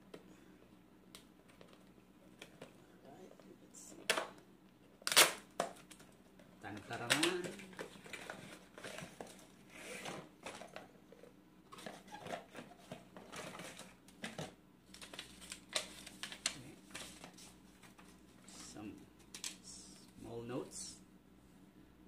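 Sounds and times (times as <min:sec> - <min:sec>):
cardboard and paper rustling: 0:05.9 - 0:19.5.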